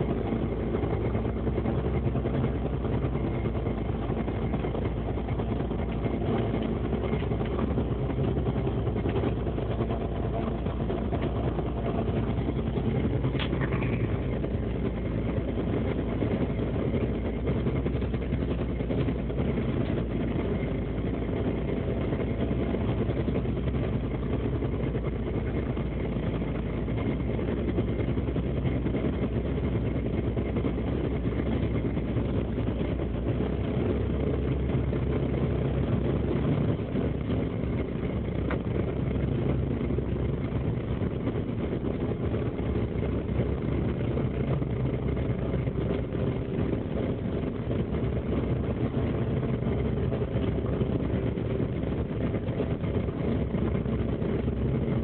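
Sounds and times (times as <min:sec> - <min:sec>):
boat engine and machinery drone: 0:00.0 - 0:55.0.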